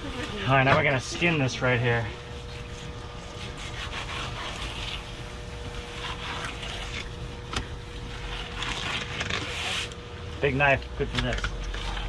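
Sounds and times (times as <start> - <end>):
steady low hum: 0.0 - 12.0
knife scraping and cutting fish: 2.5 - 10.0, 11.3 - 12.0.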